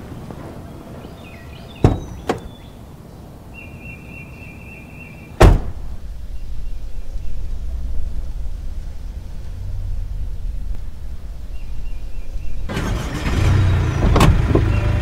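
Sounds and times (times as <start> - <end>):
low engine rumble: 0.0 - 15.0
heavy door slam: 1.6 - 2.6, 5.4 - 6.1
sharp knocks: 1.8 - 2.5.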